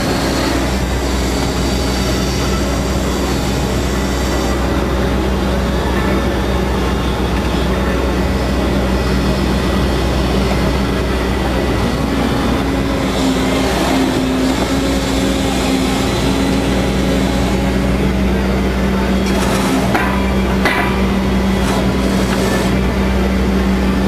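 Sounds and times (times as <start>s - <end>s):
excavator engine and hydraulics: 0.0s - 24.0s
higher steady hum: 0.0s - 24.0s
wheel moving through soil: 19.0s - 20.4s, 21.2s - 23.0s.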